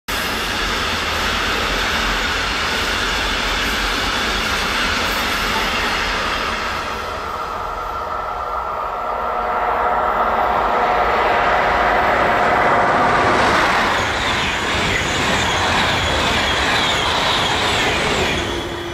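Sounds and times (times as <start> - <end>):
train wheels rushing on rails: 0.1 - 18.9.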